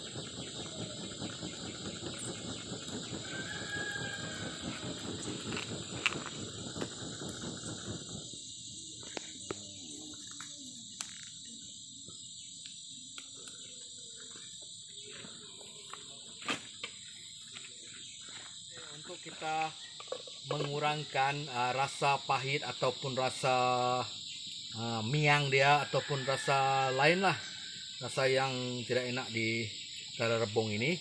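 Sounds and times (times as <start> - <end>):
whooshing air gusts from fanning: 0.0 - 9.4
burning wood popping: 0.0 - 23.5
insects chirring: 0.0 - 31.0.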